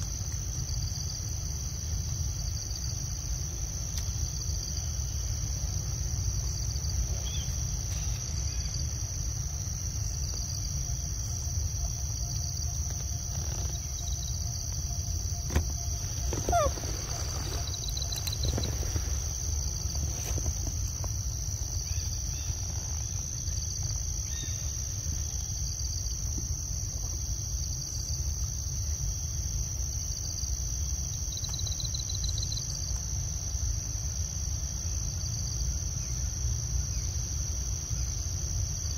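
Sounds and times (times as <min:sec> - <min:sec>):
insect trills: 0:00.0 - 0:38.9
insects chirring: 0:00.0 - 0:38.9
short falling squeak: 0:15.4 - 0:19.3.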